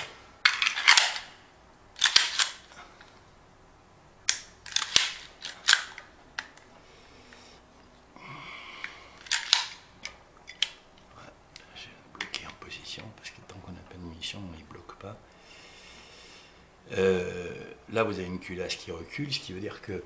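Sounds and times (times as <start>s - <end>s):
pistol slide scraping: 0.0s - 1.4s, 2.0s - 2.7s, 4.3s - 6.0s
pistol metal clicks and clacks: 0.4s - 1.3s, 2.0s - 2.7s, 4.3s - 6.6s, 9.2s - 10.8s.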